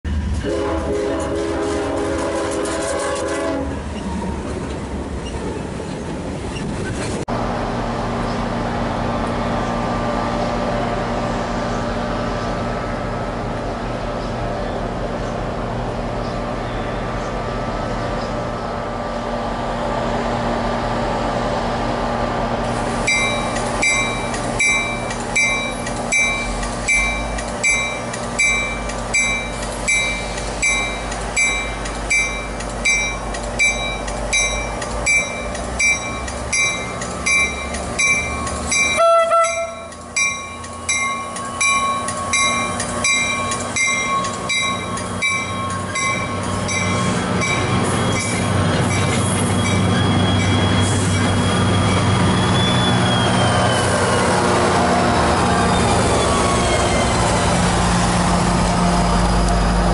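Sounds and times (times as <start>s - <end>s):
train rumbling into station: 0.0s - 59.9s
bell ringing: 23.1s - 48.3s.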